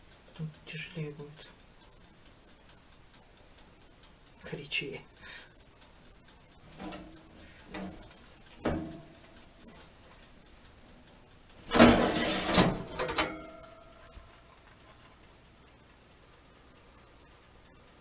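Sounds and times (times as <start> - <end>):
metal pan scraping on rack: 6.7 - 9.0, 11.7 - 13.7
metallic ring: 11.7 - 14.2.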